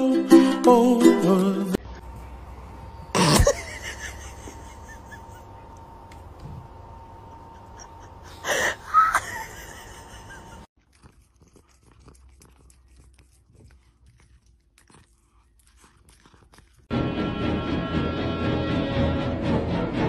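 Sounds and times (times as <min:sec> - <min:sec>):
cat chewing: 0:10.8 - 0:16.9.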